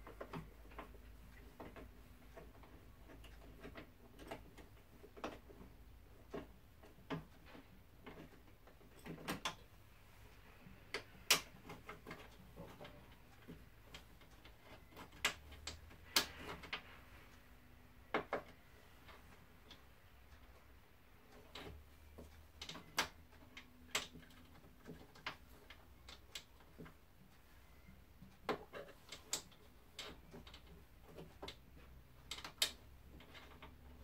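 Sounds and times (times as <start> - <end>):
metallic clicks and knocks: 10.9 - 34.0.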